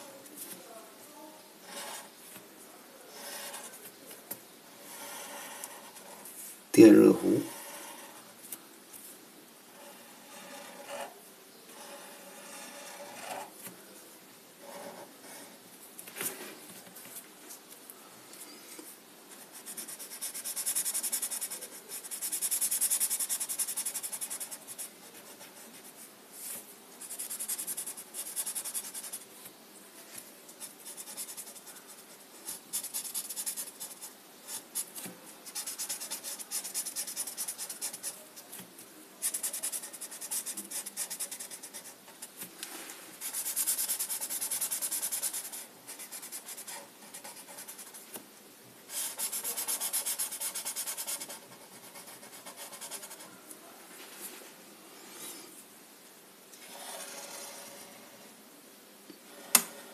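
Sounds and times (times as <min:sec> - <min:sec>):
marker scratching on paper: 0:01.6 - 0:02.1, 0:03.1 - 0:03.8, 0:04.8 - 0:06.3, 0:09.8 - 0:11.1, 0:11.8 - 0:13.5, 0:19.3 - 0:29.2, 0:30.6 - 0:38.6, 0:39.2 - 0:42.4, 0:43.2 - 0:48.2, 0:48.9 - 0:53.3, 0:56.6 - 0:58.2.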